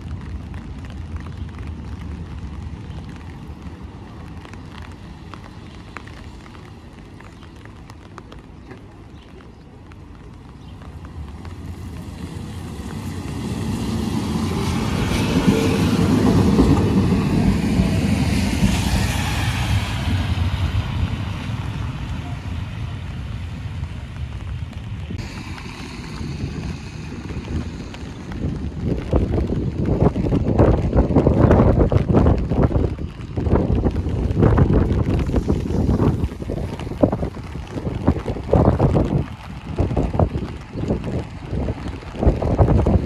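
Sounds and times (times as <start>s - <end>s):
streetcar rumbling on rails: 0.0s - 43.0s
wind on microphone: 11.7s - 43.0s.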